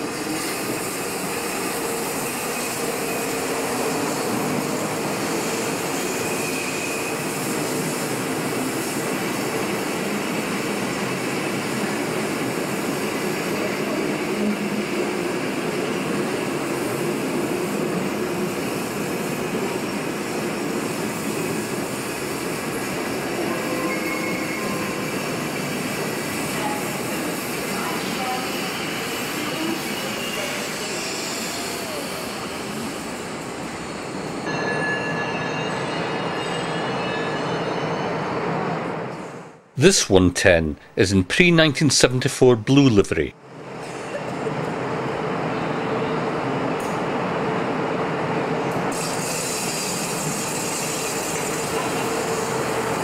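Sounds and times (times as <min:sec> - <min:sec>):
high wheel squeals: 0:05.4 - 0:07.8, 0:23.5 - 0:25.4.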